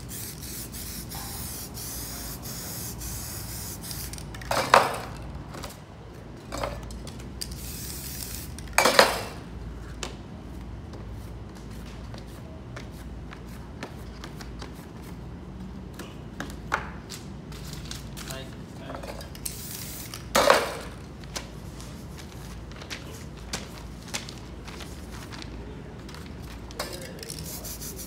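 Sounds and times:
spray paint hiss: 0:00.0 - 0:04.6, 0:07.4 - 0:08.9, 0:19.4 - 0:20.9, 0:27.1 - 0:28.0.

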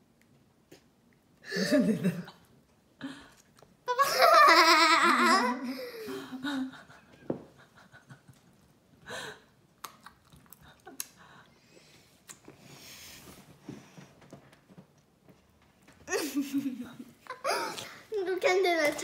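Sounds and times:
girl laughing: 0:01.5 - 0:02.4, 0:03.9 - 0:07.1, 0:16.1 - 0:18.0.

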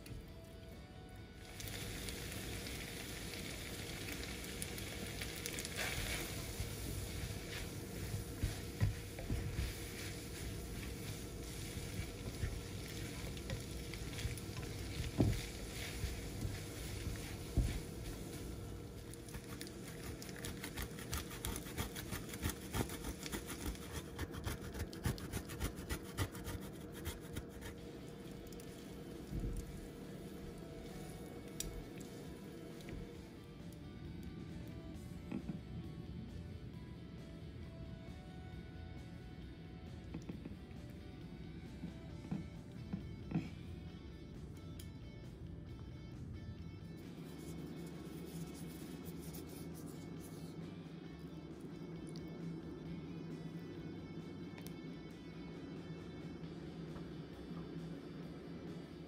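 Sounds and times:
noodles sizzling in a wok: 0:01.4 - 0:24.4.

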